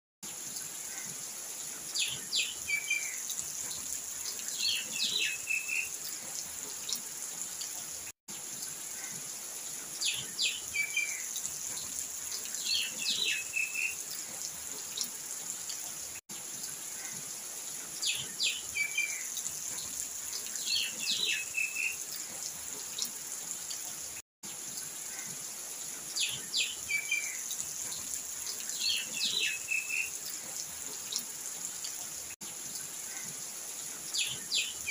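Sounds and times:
bird chirping: 0:28.7 - 0:30.1.

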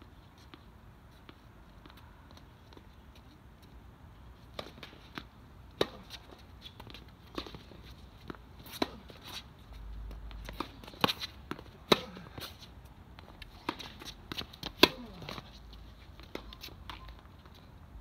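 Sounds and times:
tennis balls struck by rackets: 0:04.5 - 0:09.5, 0:10.1 - 0:15.6
tennis balls bouncing on court: 0:04.5 - 0:17.6.

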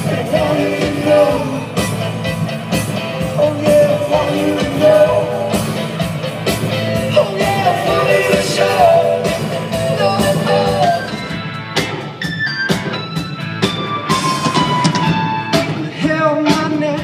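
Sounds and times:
person singing: 0:00.0 - 0:02.0, 0:03.2 - 0:05.8, 0:07.0 - 0:11.2
band music with steady beat: 0:00.0 - 0:17.0.

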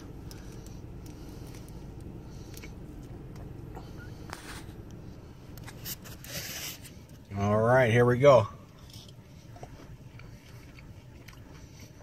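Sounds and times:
faint clicks and rustles: 0:00.0 - 0:07.4
car interior hum: 0:00.0 - 0:12.0.

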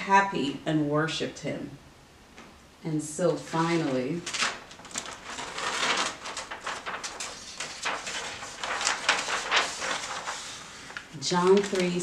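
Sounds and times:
paper pages turning: 0:03.5 - 0:12.0.

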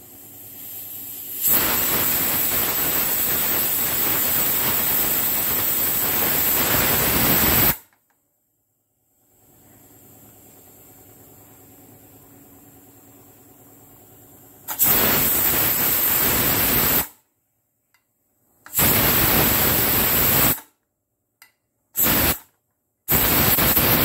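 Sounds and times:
pressure cooker steam hissing: 0:00.0 - 0:07.8, 0:14.7 - 0:17.1, 0:18.7 - 0:20.6, 0:22.0 - 0:22.4, 0:23.1 - 0:24.0.

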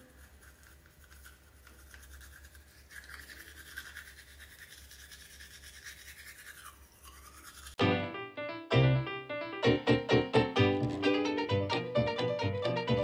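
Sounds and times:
toothbrush scrubbing teeth: 0:00.0 - 0:07.8
loud piano music: 0:07.8 - 0:13.0.

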